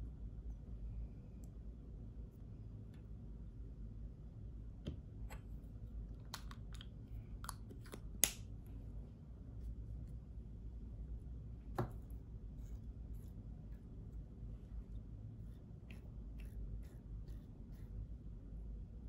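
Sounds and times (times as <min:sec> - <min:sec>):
low room hum: 0:00.0 - 0:19.0.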